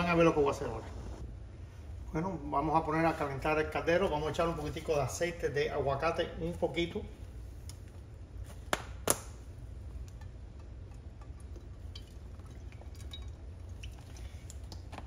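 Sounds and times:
low hum: 0.0 - 4.2
oil pouring into a pan: 10.8 - 15.0.

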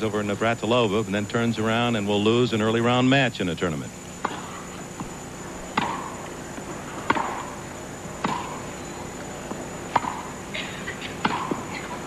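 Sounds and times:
racket striking tennis ball: 4.2 - 8.8, 9.4 - 10.4, 11.0 - 12.0.

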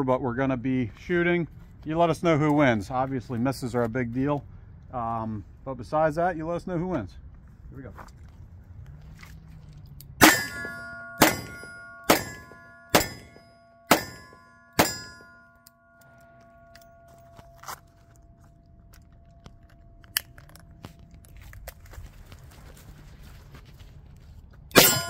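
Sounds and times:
steel targets ringing: 10.2 - 20.5, 24.7 - 25.0.

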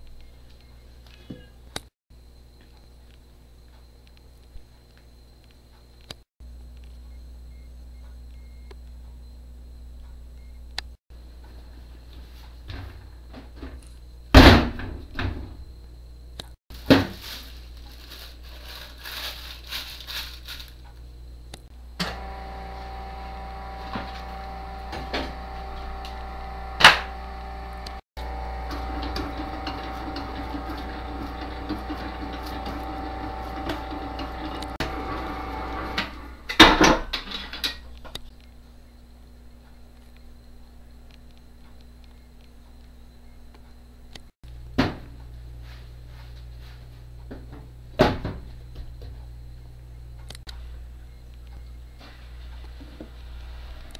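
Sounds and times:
stand mixer motor hum: 22.0 - 36.2.

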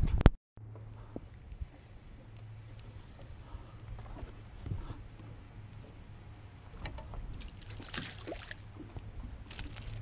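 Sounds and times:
steady low rumble: 0.0 - 10.0
fish splashing in water: 7.4 - 10.0.

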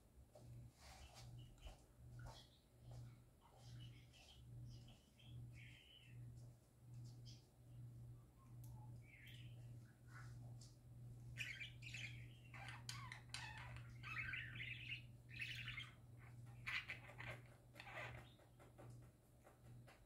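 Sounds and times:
budgerigars chattering and warbling: 11.4 - 18.4.

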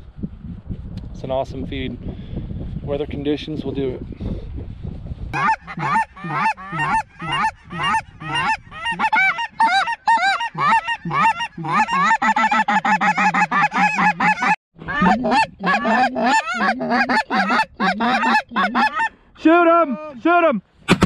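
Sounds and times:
geese honking: 5.4 - 19.1.

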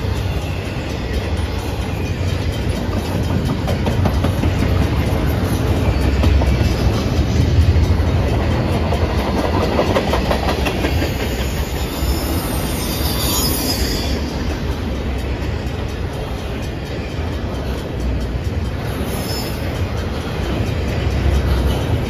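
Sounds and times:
freight train rumble: 0.0 - 22.0
high wheel squeal: 0.0 - 22.0
wheel clatter over rail joints: 0.0 - 22.0.

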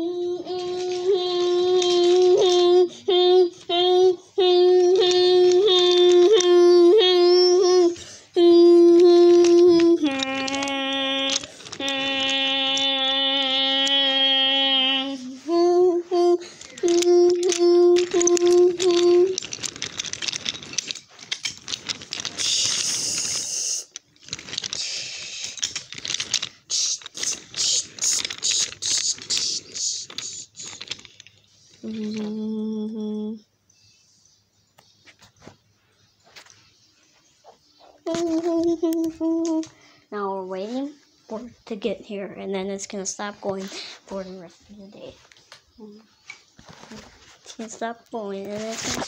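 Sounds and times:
toy train cars clattering on track: 0.2 - 33.1, 38.1 - 39.7, 46.3 - 49.0
steady hiss: 22.3 - 24.0, 24.6 - 25.9, 26.5 - 30.8.

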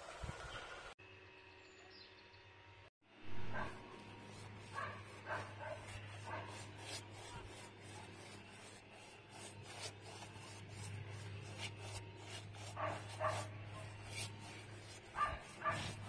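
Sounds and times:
paintbrush rubbing on wood: 3.4 - 16.0
dog barking: 3.5 - 3.8, 4.8 - 6.6, 12.8 - 13.9, 15.2 - 16.0.

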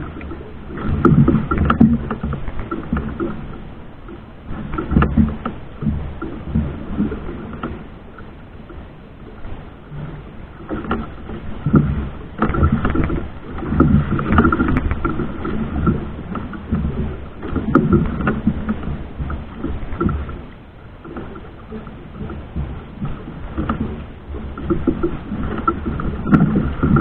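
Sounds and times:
boat motor running: 0.0 - 27.0.

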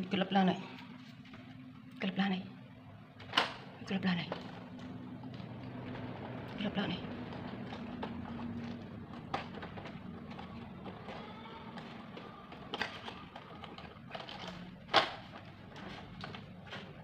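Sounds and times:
plastic blocks knocking together: 7.2 - 17.0.

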